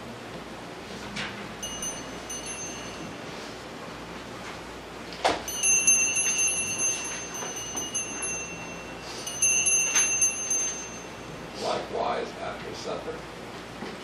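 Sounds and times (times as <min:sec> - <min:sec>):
altar bell ringing: 0:01.6 - 0:03.6, 0:05.4 - 0:11.9.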